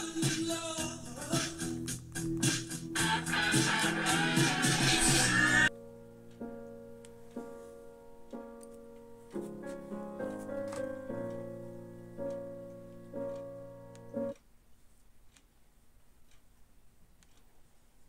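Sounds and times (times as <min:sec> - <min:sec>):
slow piano music from television: 0:05.7 - 0:14.4.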